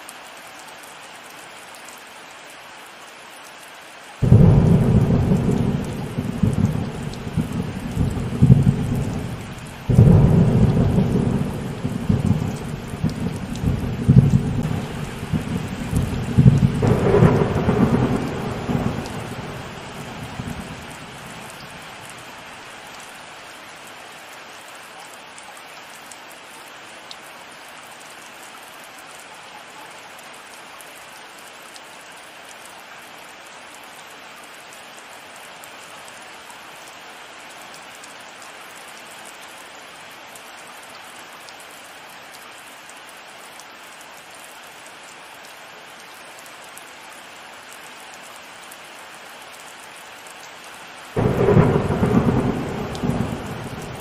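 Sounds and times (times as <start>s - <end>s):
heavy rain falling: 0.0s - 54.0s
loud thunderclap: 4.2s - 21.4s, 51.2s - 54.0s.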